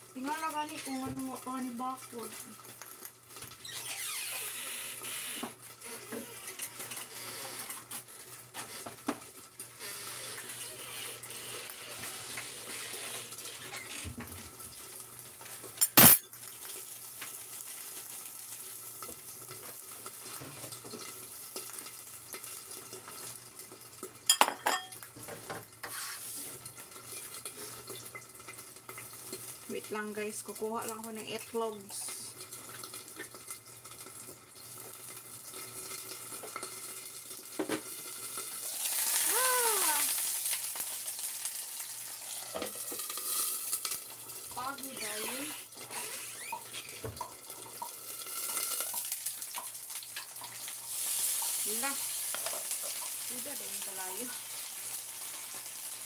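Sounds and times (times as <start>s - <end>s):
stir-fry sizzling: 0.0s - 56.0s.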